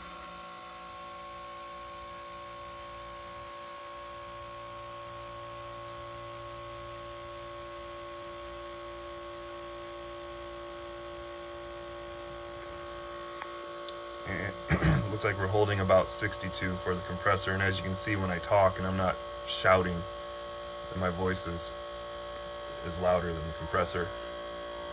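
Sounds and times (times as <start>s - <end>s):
airbrush compressor motor hum: 0.0s - 24.9s.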